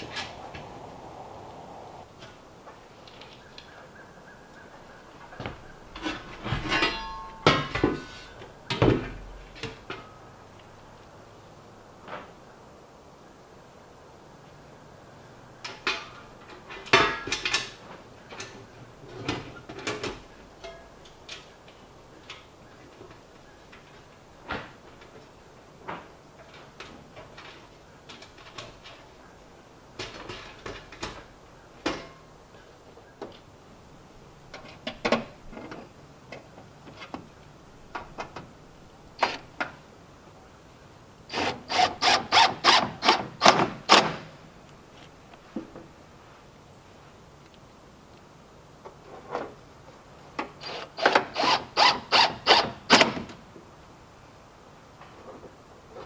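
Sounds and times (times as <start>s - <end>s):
thin steel clanking and scraping: 5.9s - 8.5s, 18.4s - 21.5s.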